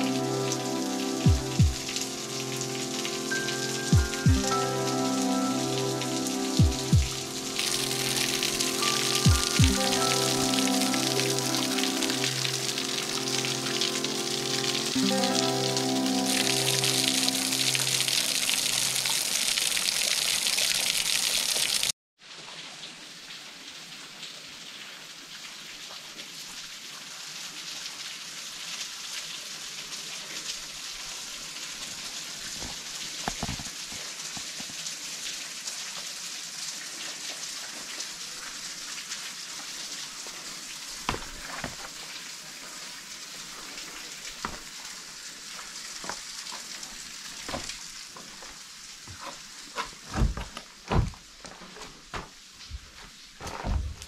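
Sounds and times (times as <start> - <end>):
water pattering on rock: 32.6 - 34.8, 40.2 - 42.2, 43.6 - 44.9, 45.5 - 54.0
footsteps on loose stones: 41.1 - 42.0, 47.5 - 54.0.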